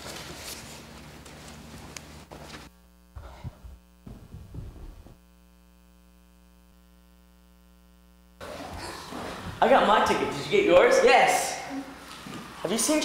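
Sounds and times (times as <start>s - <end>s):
footsteps on stage floor: 0.0s - 5.2s
electrical mains hum: 0.0s - 13.0s.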